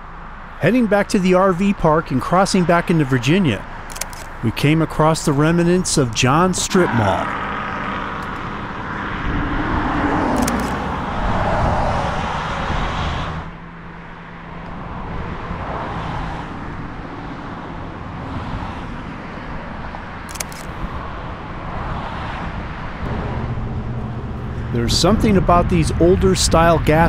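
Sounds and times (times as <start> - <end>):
car passing: 0.0 - 27.0
steady traffic noise: 0.0 - 27.0.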